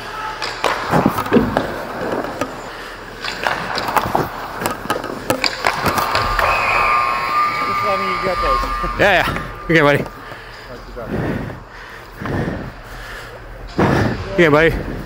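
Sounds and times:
hockey sticks clacking: 0.1s - 8.4s
puck hitting goalie pads: 0.4s - 6.5s
skates scraping on ice: 5.4s - 8.6s.

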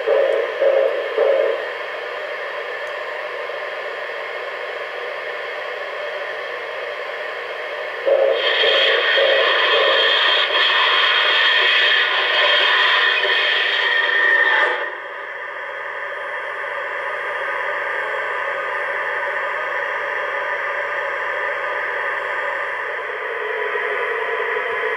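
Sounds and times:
model train running: 0.0s - 1.7s, 8.0s - 14.8s
rhythmic pulsing sound: 0.0s - 1.9s, 8.1s - 14.2s
steady electronic hiss: 7.8s - 14.2s.

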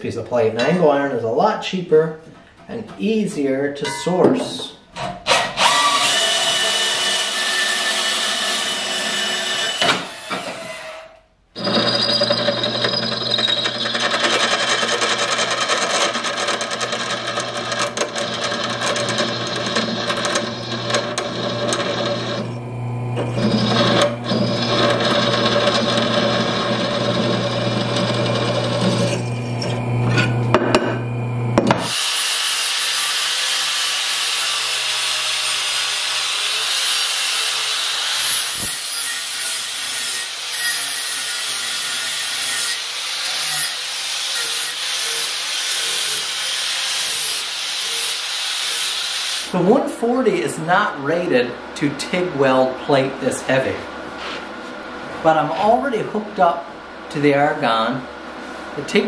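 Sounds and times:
angle grinder grinding steel: 5.6s - 10.9s, 11.6s - 30.6s, 31.8s - 49.5s
drill press drilling into steel: 11.6s - 22.6s, 23.2s - 29.8s.

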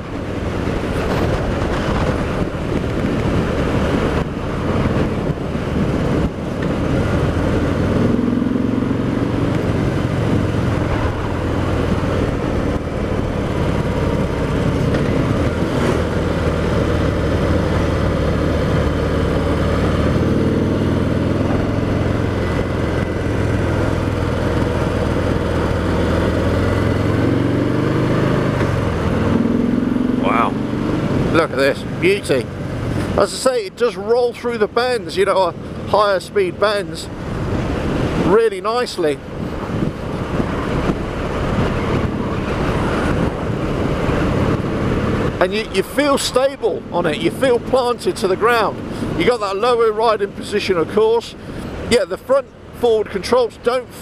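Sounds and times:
wind noise on microphone: 0.0s - 30.0s, 37.1s - 47.9s
motorcycle engine at road speed: 0.0s - 54.0s.

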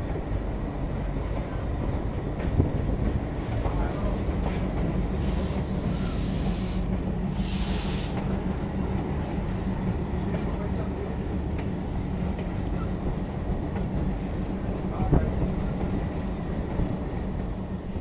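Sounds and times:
diesel locomotive engine rumble: 0.0s - 18.0s
bursts of hiss: 5.2s - 8.3s.

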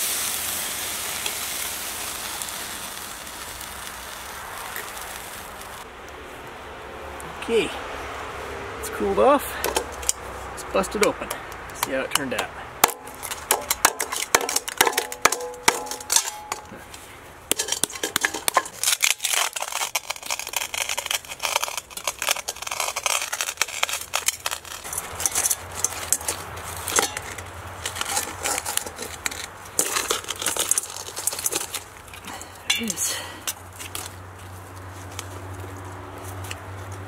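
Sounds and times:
plaster chunks clinking into pot: 17.5s - 18.9s.

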